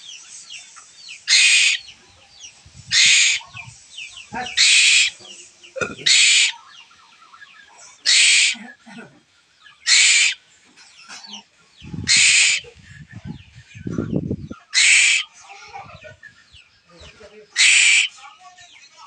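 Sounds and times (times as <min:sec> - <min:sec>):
bird chick begging calls: 0:01.2 - 0:02.0, 0:02.8 - 0:05.2, 0:06.0 - 0:08.6, 0:09.7 - 0:10.4, 0:11.2 - 0:16.6, 0:17.6 - 0:18.2.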